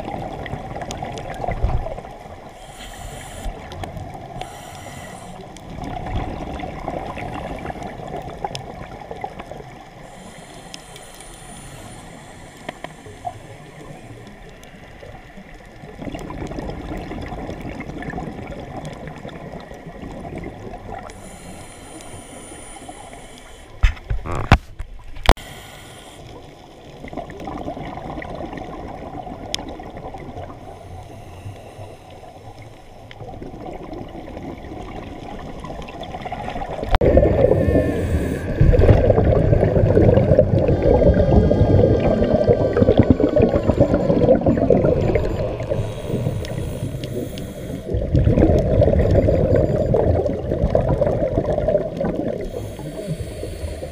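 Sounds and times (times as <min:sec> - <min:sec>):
exhaled bubbles gurgling: 0:00.0 - 0:24.6, 0:26.2 - 0:53.9
diver breathing through regulator: 0:02.4 - 0:05.6, 0:10.0 - 0:14.4, 0:21.0 - 0:23.8, 0:25.3 - 0:26.6, 0:30.6 - 0:33.2, 0:37.2 - 0:39.2, 0:45.5 - 0:48.1, 0:52.3 - 0:53.9.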